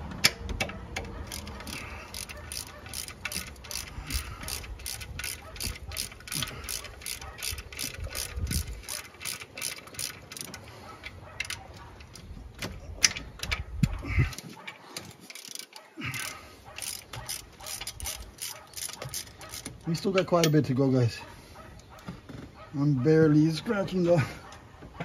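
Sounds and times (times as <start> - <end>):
socket ratchet clicking: 0.2 - 13.6, 15.0 - 20.5.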